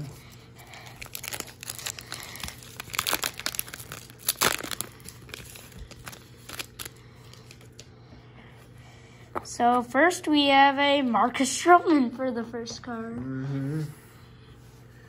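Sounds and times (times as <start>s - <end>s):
plastic wrapper crinkling: 0.6s - 7.9s.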